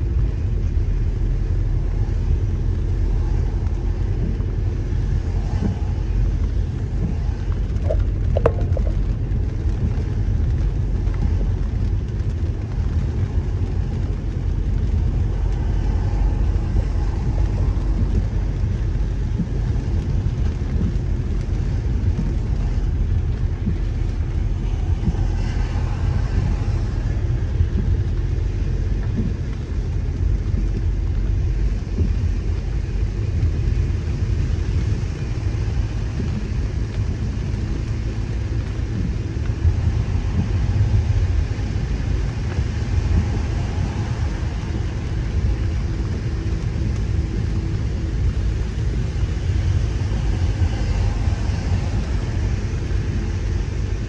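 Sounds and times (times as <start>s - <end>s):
car engine and tyre noise: 0.0s - 54.0s.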